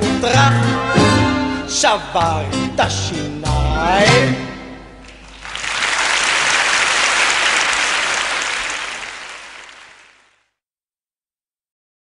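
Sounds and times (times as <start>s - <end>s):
audience applauding: 5.0s - 10.4s.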